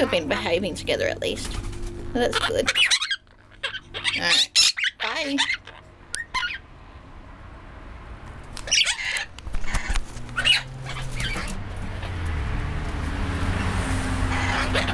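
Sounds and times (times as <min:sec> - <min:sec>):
parrots squawking: 0:00.0 - 0:00.6, 0:01.6 - 0:06.7, 0:08.6 - 0:12.2, 0:14.2 - 0:14.9.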